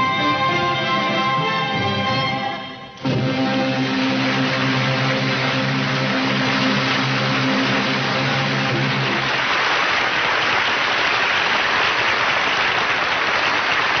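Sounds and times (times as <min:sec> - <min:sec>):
studio audience applauding: 0:03.1 - 0:14.0.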